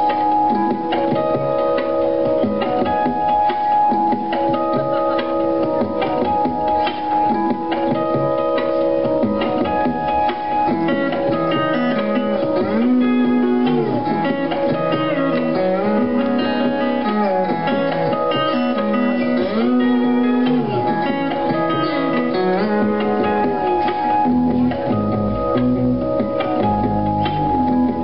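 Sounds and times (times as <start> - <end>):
lap slide guitar: 0.0 - 28.0.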